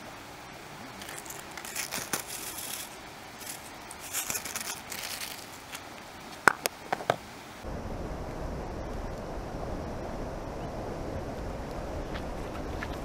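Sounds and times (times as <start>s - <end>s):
cabbage rustling in plastic container: 1.0s - 5.8s.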